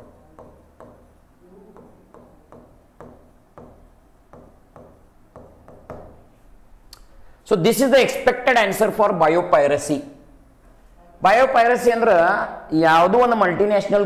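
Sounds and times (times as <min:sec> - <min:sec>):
stylus tapping on glass: 0:00.0 - 0:01.2, 0:01.8 - 0:06.2.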